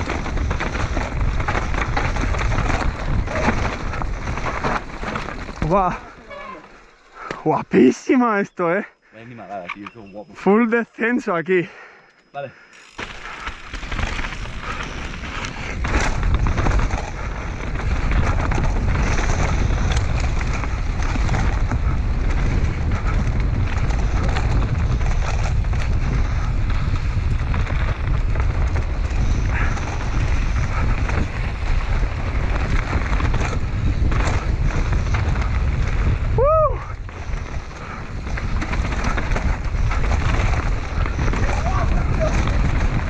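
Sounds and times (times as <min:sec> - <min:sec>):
wind buffeting microphone: 0:00.0 - 0:06.1, 0:13.2 - 0:43.0
bike knocks and rattles: 0:00.0 - 0:06.6, 0:12.9 - 0:36.3
tyres rumbling over dirt: 0:00.0 - 0:08.0, 0:12.9 - 0:43.0.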